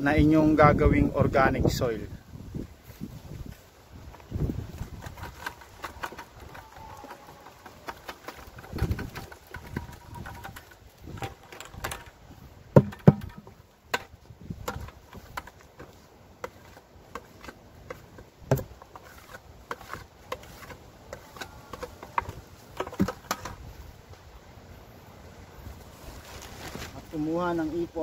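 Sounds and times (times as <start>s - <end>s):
plastic bucket knocking and rustling: 4.1s - 23.6s.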